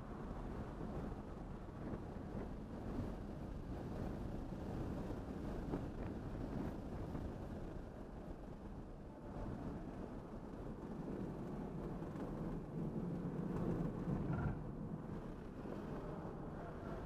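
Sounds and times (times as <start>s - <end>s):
road and tyre noise in car cabin: 0.0s - 17.0s.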